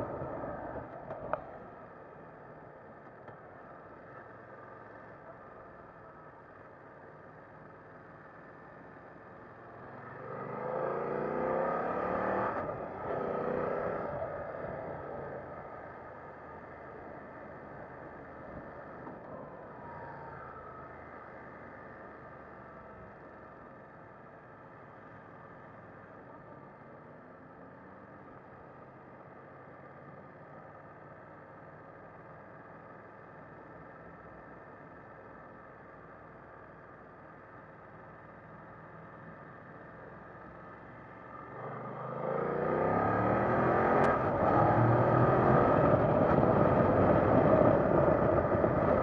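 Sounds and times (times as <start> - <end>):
motorcycle engine accelerating: 41.4 - 49.0.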